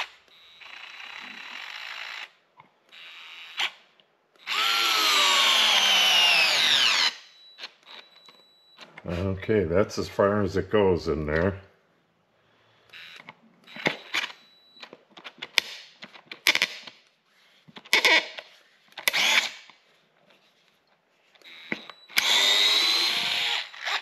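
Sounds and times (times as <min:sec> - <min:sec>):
cordless screwdriver whirring: 0:00.0 - 0:08.1, 0:12.9 - 0:14.5, 0:17.9 - 0:19.8, 0:21.4 - 0:24.0.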